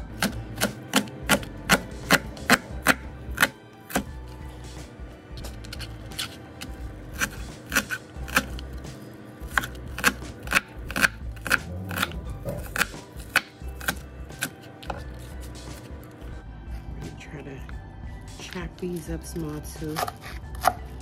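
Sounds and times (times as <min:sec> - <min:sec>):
knife chopping on a board: 0:00.0 - 0:04.2, 0:05.7 - 0:08.7, 0:09.5 - 0:15.2, 0:19.9 - 0:20.9.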